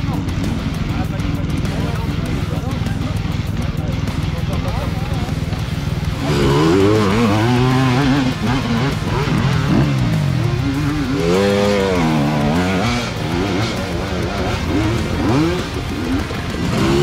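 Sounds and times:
vehicle engine revving: 0.0 - 17.0.

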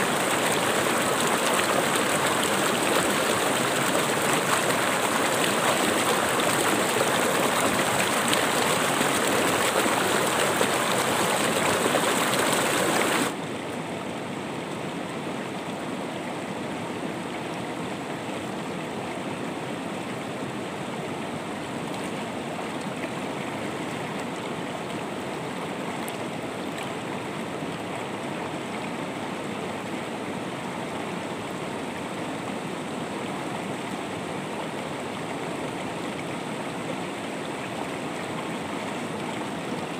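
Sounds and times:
calm water flowing: 0.0 - 39.9
river rushing over rocks: 0.0 - 39.9.

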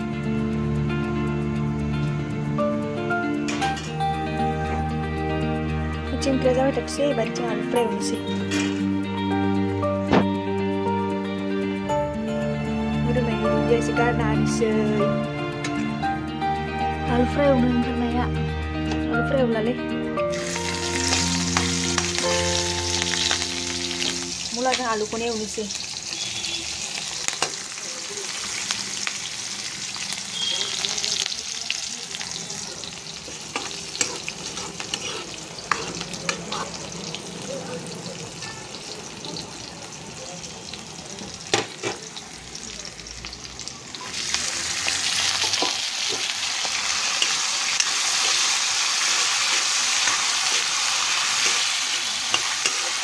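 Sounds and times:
vegetables sizzling in hot oil: 20.3 - 53.0
metal spatula stirring in pan: 33.2 - 37.2, 47.0 - 53.0.

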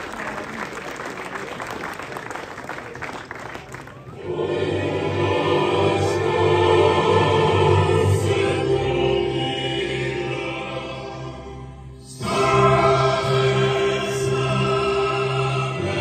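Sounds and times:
choir with orchestra: 4.1 - 16.0.

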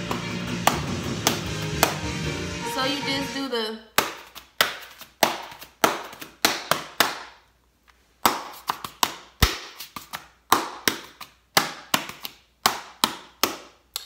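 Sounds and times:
object slapped against palm: 0.1 - 2.0.

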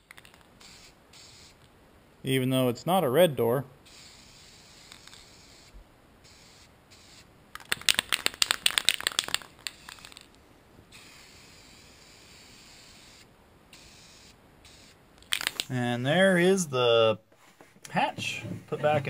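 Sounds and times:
sharp clicks and rattles: 7.6 - 10.3, 15.2 - 15.7.

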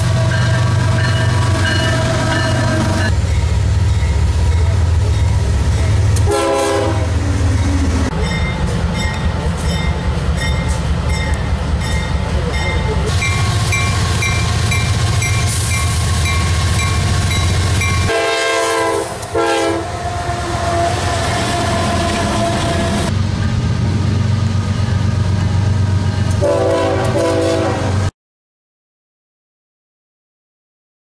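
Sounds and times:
diesel locomotive engine rumble: 0.0 - 28.1
locomotive bell ringing: 0.1 - 6.2, 7.5 - 18.2
air horn blasts: 6.2 - 7.2, 18.1 - 23.1, 26.4 - 28.0.

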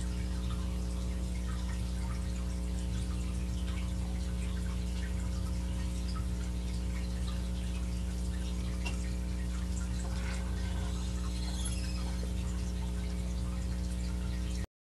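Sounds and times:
low electrical hum: 0.0 - 14.7
faint high whine: 9.6 - 13.6.

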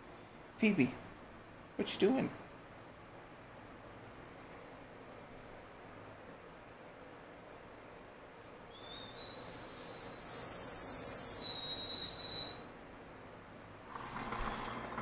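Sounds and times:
high steady whistle: 8.7 - 12.7.

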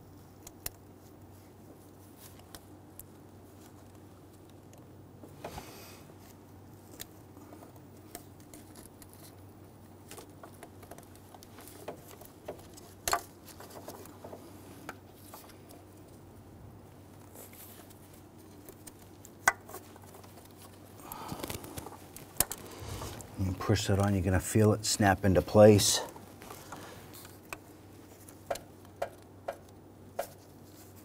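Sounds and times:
light clicks and taps of parts: 26.1 - 31.0.

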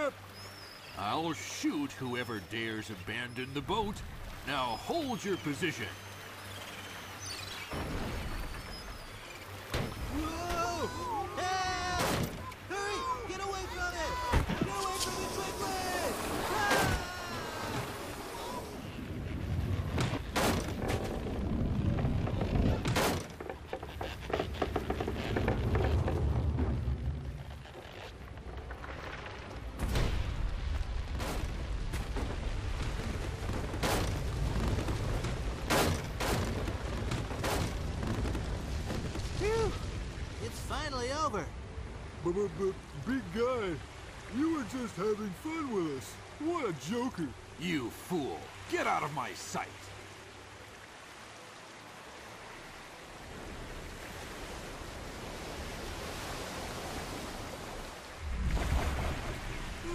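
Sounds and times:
sea waves and surf rushing: 0.0 - 59.9
deep rumble: 25.3 - 39.2.

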